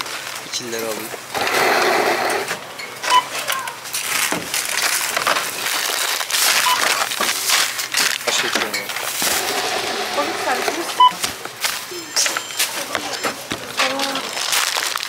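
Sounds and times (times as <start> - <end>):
plastic bags crackling: 0.0 - 1.4, 2.4 - 15.0
faint voices: 0.4 - 4.1, 6.8 - 14.6
barcode scanner beeping: 2.8 - 3.4, 6.6 - 7.0, 10.4 - 11.2, 11.9 - 13.5.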